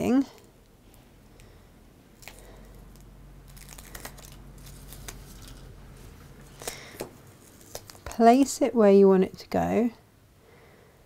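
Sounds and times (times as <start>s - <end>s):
paper backing peeled off tape: 2.2s - 8.2s.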